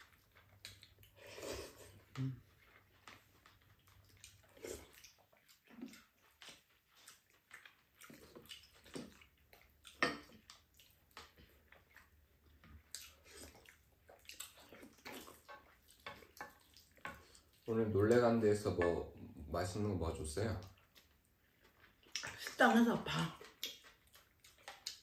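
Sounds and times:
chewing: 0.0 - 19.4, 20.4 - 25.0
slurping broth: 1.0 - 3.2, 4.2 - 9.3, 12.9 - 17.7.

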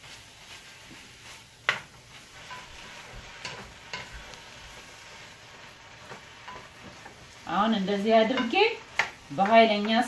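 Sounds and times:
beef sizzling in a frying pan: 0.0 - 10.0
wooden spoon knocking on pan: 8.2 - 10.0.

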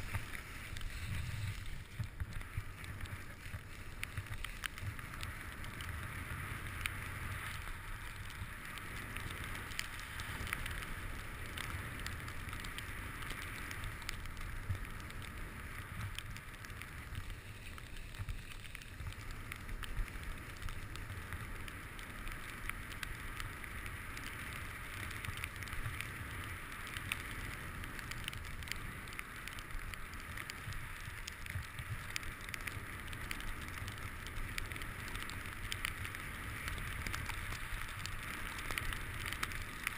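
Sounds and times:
skis scraping over snow: 0.0 - 39.9.

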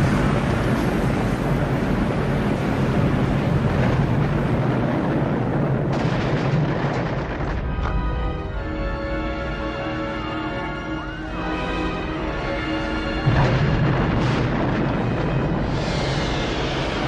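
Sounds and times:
long rumbling explosion: 0.0 - 7.9, 13.2 - 17.0
music with long held notes: 7.5 - 17.0.

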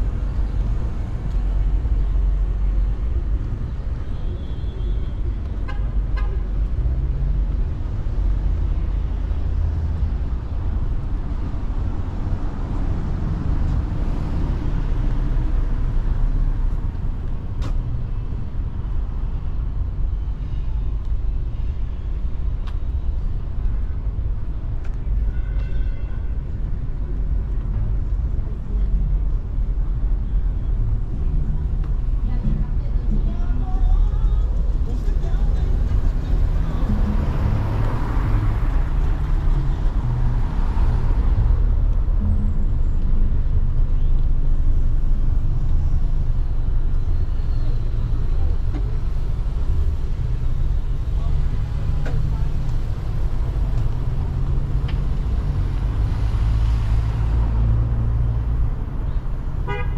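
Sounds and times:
city traffic rumble: 0.0 - 59.9
car horn toot: 59.6 - 59.9.

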